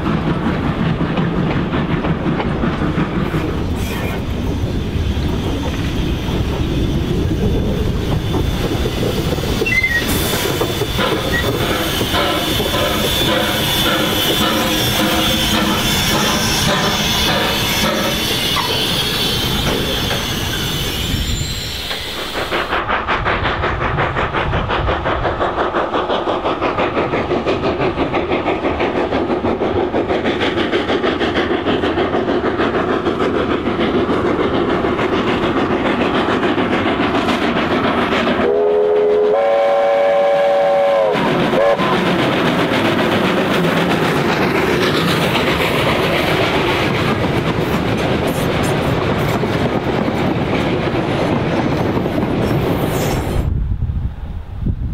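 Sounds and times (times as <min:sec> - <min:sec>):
steam locomotive chuffing: 0:00.0 - 0:53.5
steam whistle chord: 0:38.4 - 0:41.9.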